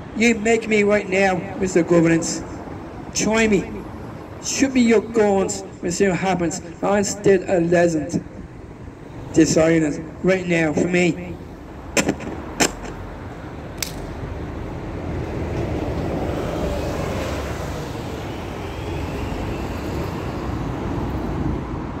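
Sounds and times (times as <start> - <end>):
street traffic noise: 0.0 - 22.0
microphone handling knocks: 12.0 - 13.0.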